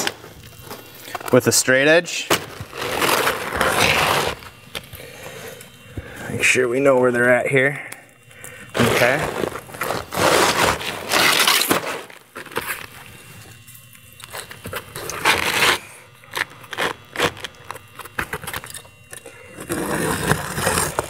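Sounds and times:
knife scraping shingle: 0:19.6 - 0:21.0.

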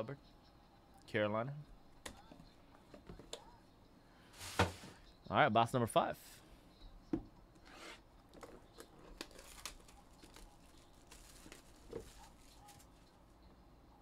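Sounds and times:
plastic wrapping crinkling and tearing: 0:08.3 - 0:13.0.

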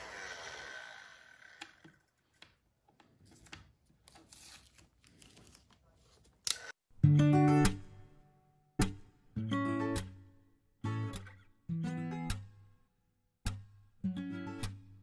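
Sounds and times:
guitar music: 0:07.0 - 0:12.6, 0:13.5 - 0:15.0.

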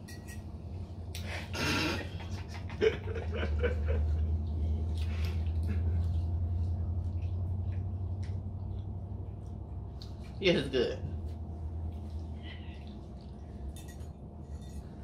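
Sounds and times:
steady low hum: 0:00.0 - 0:15.0
low giggling: 0:01.5 - 0:04.4.

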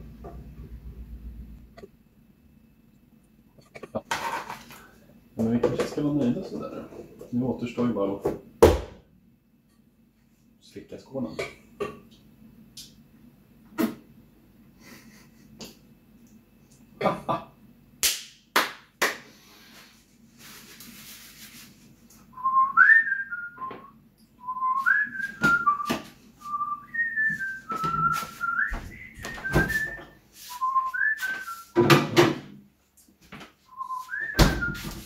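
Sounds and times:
man whistling a tune: 0:22.4 - 0:31.8, 0:33.7 - 0:35.0.

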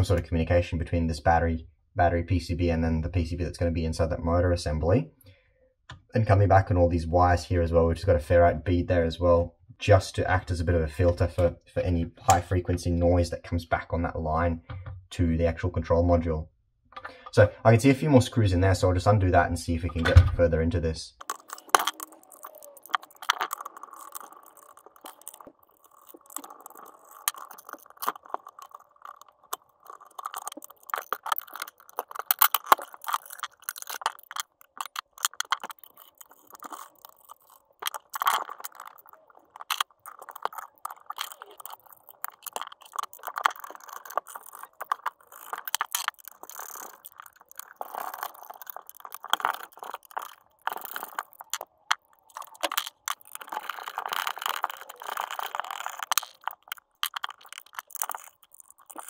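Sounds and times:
plastic and metal parts clicking: 0:21.2 - 0:59.0.

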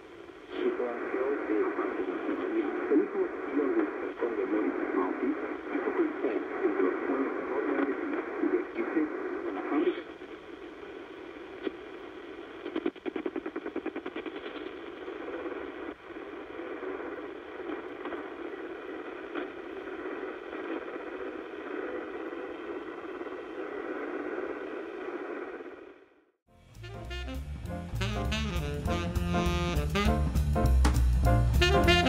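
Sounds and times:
shortwave radio hiss and static: 0:00.0 - 0:26.4.

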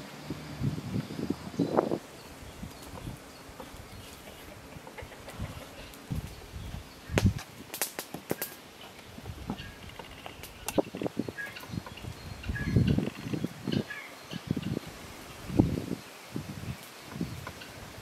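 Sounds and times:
high bird chirps: 0:09.6 - 0:14.8.

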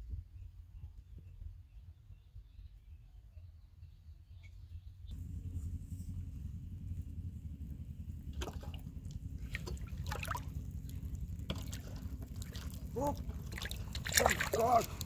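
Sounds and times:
steady low rumble: 0:04.9 - 0:15.0
water splashing and trickling: 0:08.2 - 0:15.0.

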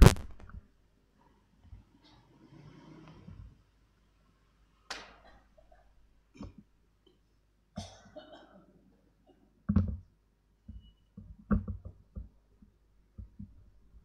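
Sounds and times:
person coughing: 0:07.8 - 0:08.7.

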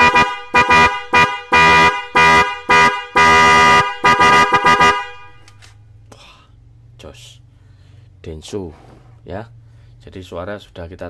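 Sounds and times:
electric car horn blasts: 0:00.0 - 0:05.6.

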